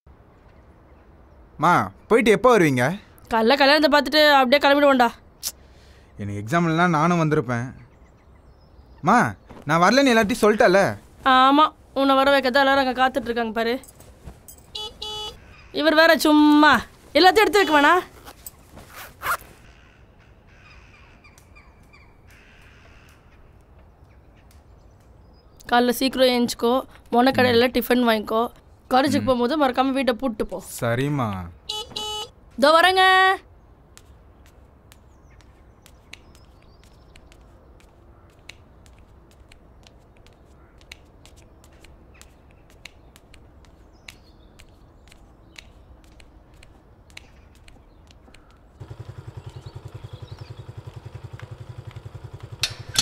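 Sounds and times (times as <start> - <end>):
quiet outdoor background noise: 0.1 - 53.0
faint footsteps: 13.2 - 15.2, 33.9 - 48.8
crows cawing faintly: 15.4 - 16.4, 19.5 - 24.7, 37.8 - 39.0, 40.2 - 42.7, 48.2 - 49.6.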